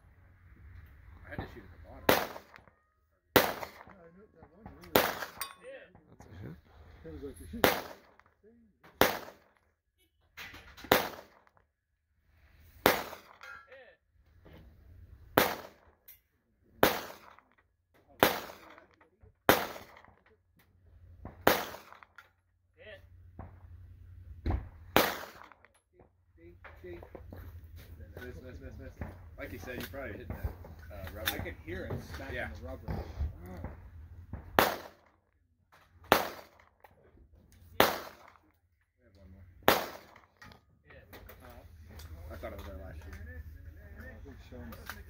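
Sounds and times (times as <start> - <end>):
pistol shots: 2.1 - 2.7, 3.4 - 4.0, 4.8 - 5.5, 7.6 - 8.2, 8.9 - 9.6, 10.8 - 11.5, 12.8 - 13.5, 15.4 - 15.9, 16.8 - 17.5, 18.2 - 20.2, 21.4 - 22.1, 24.9 - 25.6, 34.5 - 35.2, 36.0 - 36.8, 37.8 - 38.4, 39.6 - 40.4.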